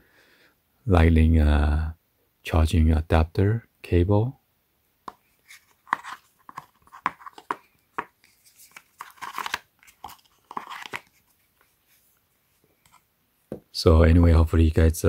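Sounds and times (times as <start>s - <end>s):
packaging rustling and crinkling: 5.4s - 11.7s.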